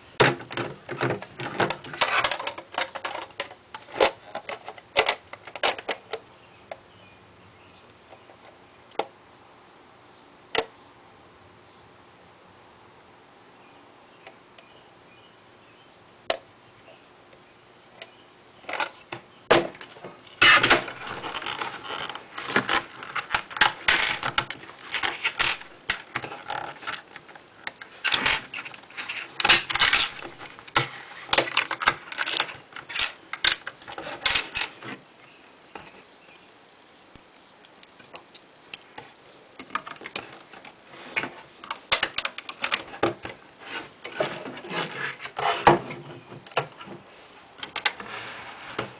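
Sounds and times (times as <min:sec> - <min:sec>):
plastic bricks clicking: 0:20.4 - 0:34.8.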